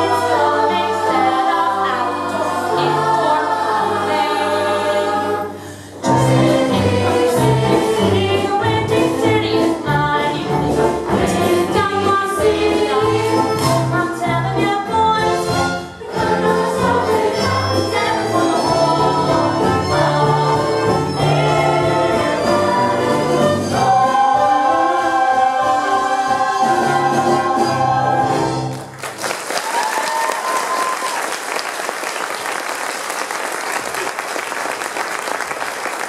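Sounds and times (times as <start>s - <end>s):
chorus singing with accompaniment: 0.0s - 28.7s
audience applause: 28.7s - 36.0s.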